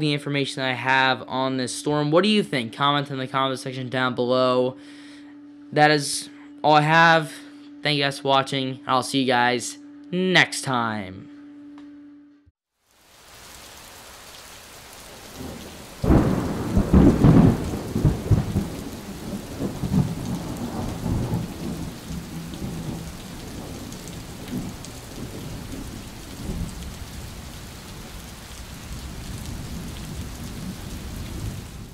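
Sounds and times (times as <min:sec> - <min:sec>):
steady rain hiss: 0:12.8 - 0:31.9
thunderclap rumbling: 0:15.1 - 0:31.9.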